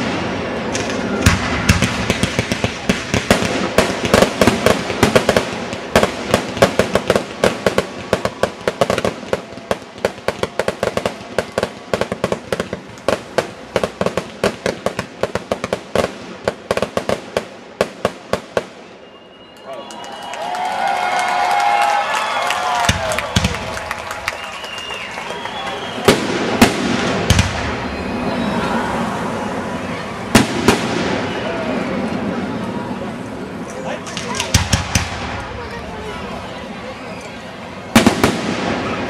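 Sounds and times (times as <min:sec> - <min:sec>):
fireworks cracking and popping: 0:00.0 - 0:18.9, 0:22.2 - 0:28.3, 0:30.3 - 0:32.6, 0:33.7 - 0:36.4, 0:37.2 - 0:39.0
rushing noise: 0:26.4 - 0:33.7.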